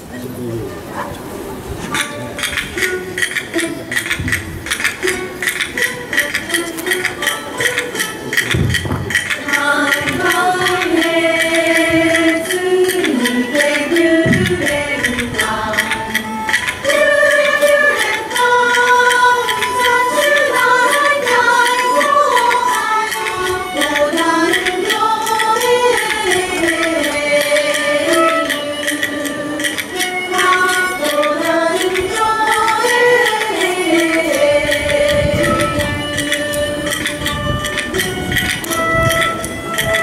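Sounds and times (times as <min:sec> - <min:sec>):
plucked lutes: 0:00.0 - 0:40.0
voices singing: 0:00.0 - 0:40.0
small drum struck with sticks: 0:06.8 - 0:11.0.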